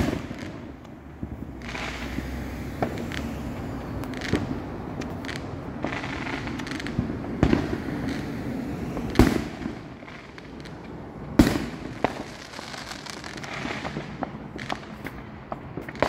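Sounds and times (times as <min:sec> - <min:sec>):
fireworks bangs: 0:00.0 - 0:16.0
fireworks pops and crackle: 0:00.0 - 0:16.0.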